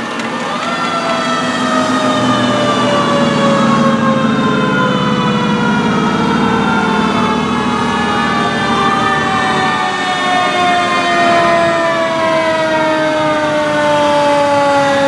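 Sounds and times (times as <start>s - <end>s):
low truck engines running: 0.0s - 15.0s
siren falling in pitch: 0.0s - 15.0s
siren wailing up and down: 0.0s - 15.0s.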